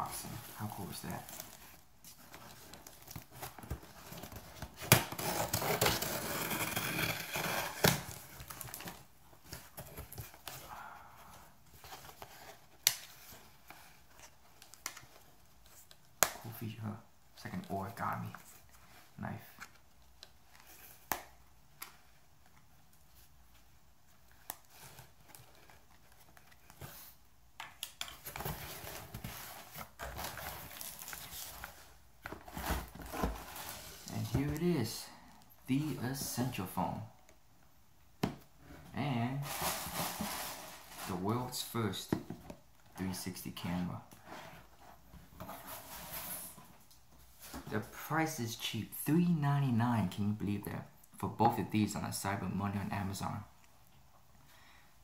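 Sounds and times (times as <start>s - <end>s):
cardboard box rustling: 28.2s - 34.8s, 39.4s - 41.2s.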